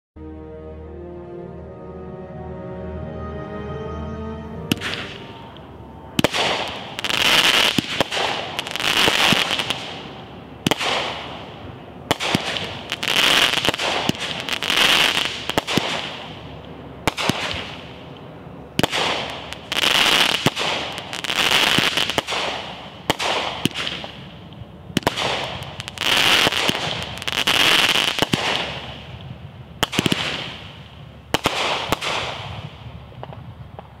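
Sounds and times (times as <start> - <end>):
firework hiss: 6.2 - 16.4.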